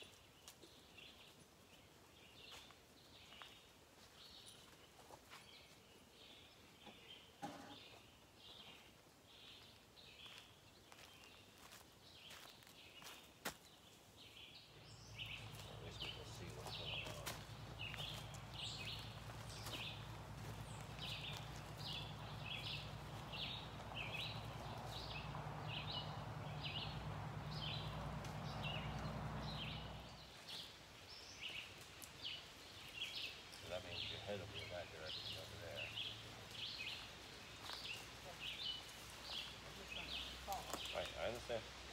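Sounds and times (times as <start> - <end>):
bird chirping: 13.8 - 41.6.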